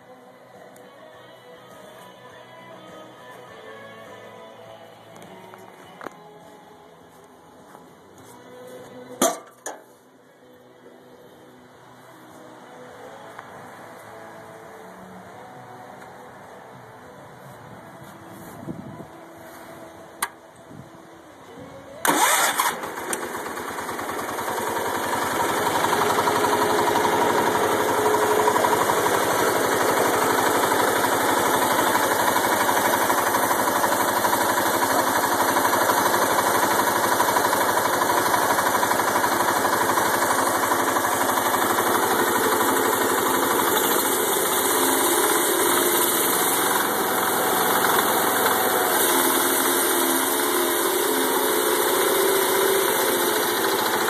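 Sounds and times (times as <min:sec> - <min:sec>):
lawn tractor engine starting and running: 0:07.2 - 0:10.0, 0:22.0 - 0:54.0.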